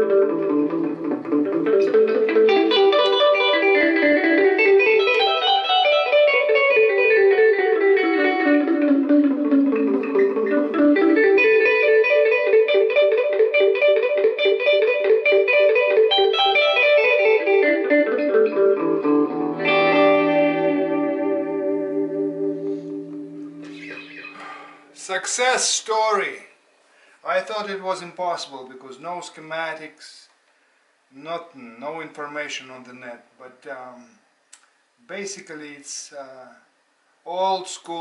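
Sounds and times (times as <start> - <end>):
electric guitar with delay echoes: 0.0 - 25.0.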